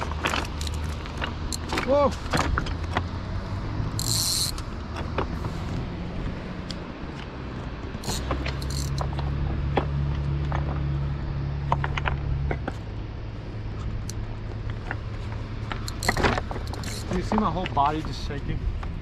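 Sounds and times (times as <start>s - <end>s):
fishing reel gear whir: 0.3s - 1.8s, 3.9s - 4.7s, 8.0s - 9.1s, 15.8s - 17.4s.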